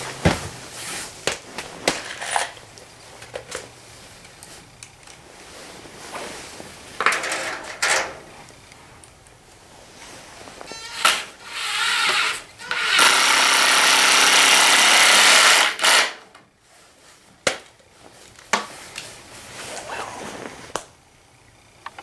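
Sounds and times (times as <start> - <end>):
cordless drill driving screw: 10.7 - 16.2.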